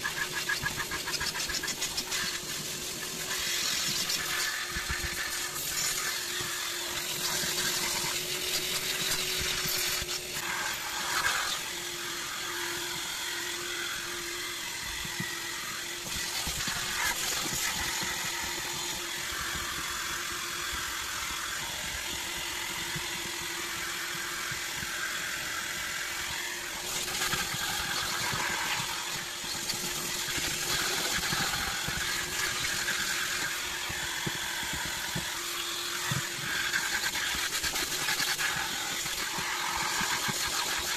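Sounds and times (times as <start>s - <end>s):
rubber scraper rasping on carpet: 0.0s - 20.1s, 25.8s - 40.9s
vacuum cleaner running: 0.0s - 40.9s.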